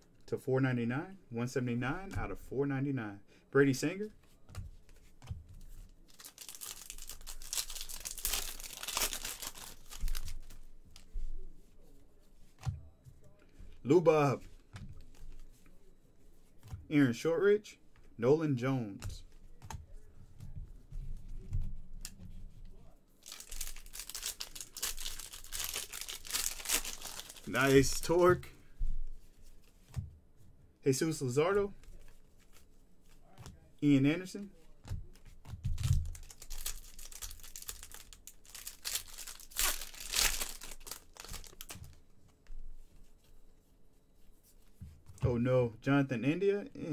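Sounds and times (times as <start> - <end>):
faint handling sounds: 3.4 - 17.0, 17.7 - 45.4
wrapper crinkling and tearing: 6.0 - 10.7, 23.2 - 28.2, 35.8 - 42.0.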